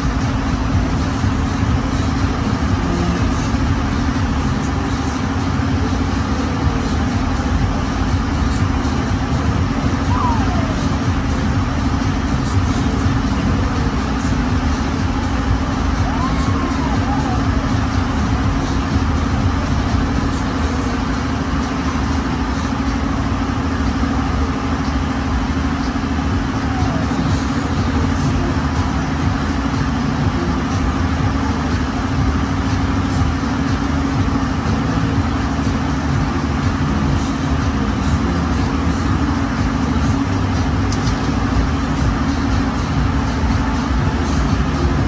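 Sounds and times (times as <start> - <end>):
ride machinery droning: 0.0 - 45.0.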